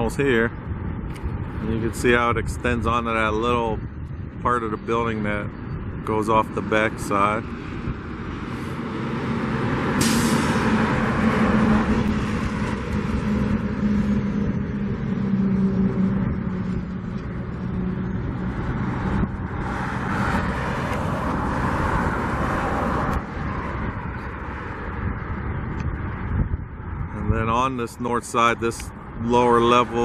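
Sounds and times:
wind buffeting the microphone: 0.0s - 30.0s
large engine humming: 3.4s - 27.1s
sharp hiss: 10.0s - 10.7s.

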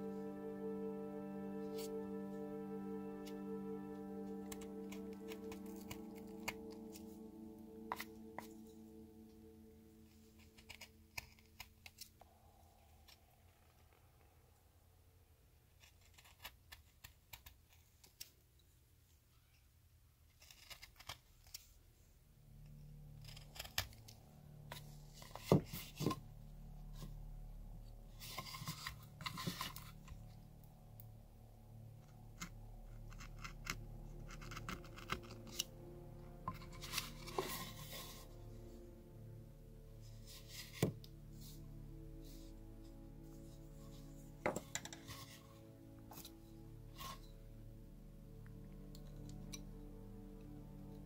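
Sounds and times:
carving tool slicing bark: 23.2s - 24.0s.

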